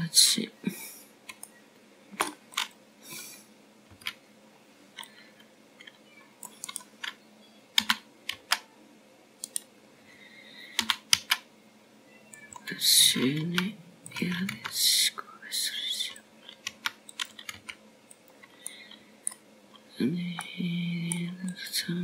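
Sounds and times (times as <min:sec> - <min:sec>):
computer keyboard clicks: 0:01.3 - 0:01.5, 0:06.4 - 0:07.2, 0:07.8 - 0:08.6, 0:09.4 - 0:09.7, 0:10.8 - 0:11.4, 0:16.5 - 0:18.6.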